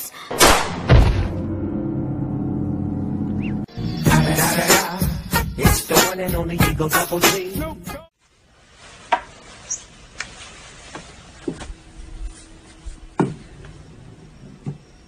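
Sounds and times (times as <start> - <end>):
hip-hop music: 3.7 - 8.1.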